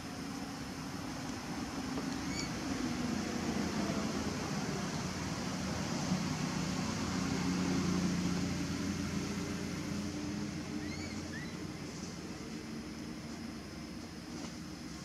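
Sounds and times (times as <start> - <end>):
distant engine hum: 0.0 - 15.0.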